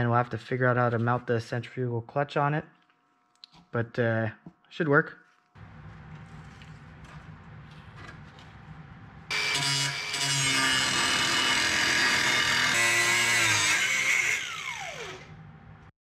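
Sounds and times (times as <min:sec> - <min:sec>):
angle grinder cutting steel: 0:09.3 - 0:15.3
grinder disc winding down: 0:14.1 - 0:15.3.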